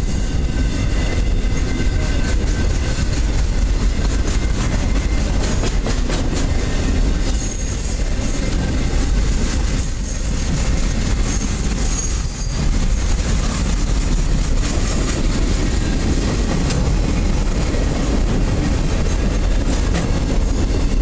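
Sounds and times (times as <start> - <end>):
steel wheels rumbling on rail: 0.0 - 21.0
high wheel squeal: 6.5 - 13.8.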